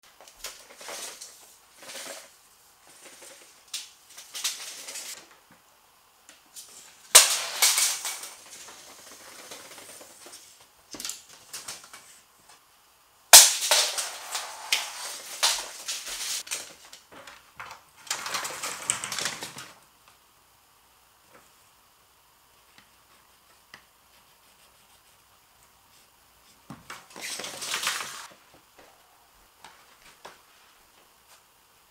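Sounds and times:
tape measure rattling and clicking: 0:07.1 - 0:10.4, 0:13.4 - 0:16.8
tape measure snapping: 0:13.4 - 0:16.4.

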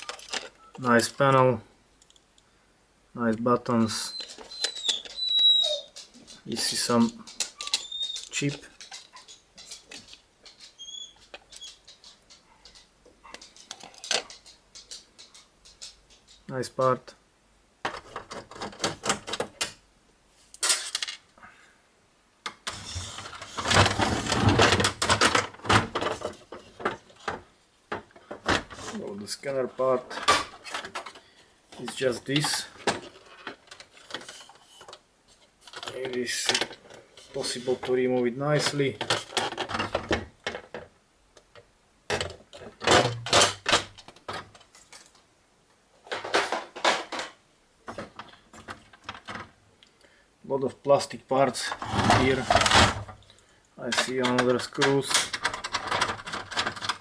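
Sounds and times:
plastic housing clicking and clattering: 0:00.0 - 0:00.6, 0:53.9 - 0:57.0
plastic printer parts clattering: 0:00.0 - 0:01.4, 0:17.8 - 0:19.8, 0:22.6 - 0:29.0, 0:29.8 - 0:35.0, 0:35.6 - 0:40.9, 0:42.1 - 0:45.2, 0:46.0 - 0:49.5, 0:51.7 - 0:53.2, 0:53.8 - 0:57.0.

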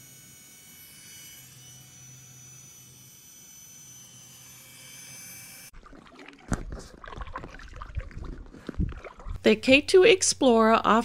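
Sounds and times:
hum with high whining tones: 0:00.0 - 0:05.7
water sloshing and splashing: 0:05.7 - 0:09.5
wind on microphone: 0:06.5 - 0:09.5.

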